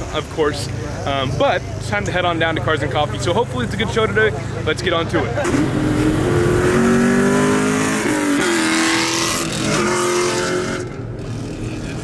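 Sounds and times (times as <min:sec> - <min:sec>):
car engine accelerating hard: 0:05.4 - 0:12.0.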